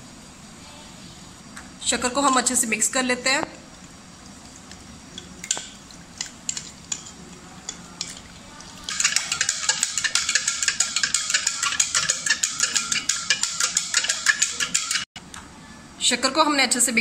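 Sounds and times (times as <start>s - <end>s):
spoon clinking against glass: 8.9s - 15.1s.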